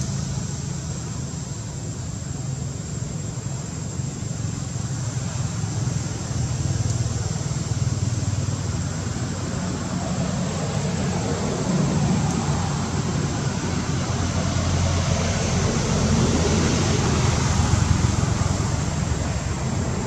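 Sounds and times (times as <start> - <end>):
low rumbling outdoor background: 0.0 - 20.0.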